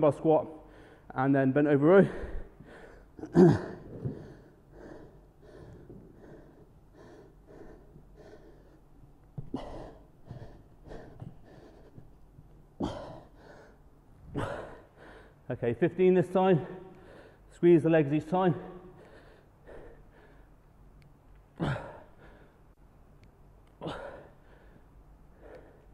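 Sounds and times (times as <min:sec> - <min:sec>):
man breathing hard: 0:00.6 - 0:01.1, 0:02.0 - 0:15.5, 0:16.6 - 0:17.5, 0:18.6 - 0:20.6, 0:21.6 - 0:22.8, 0:23.8 - 0:25.9.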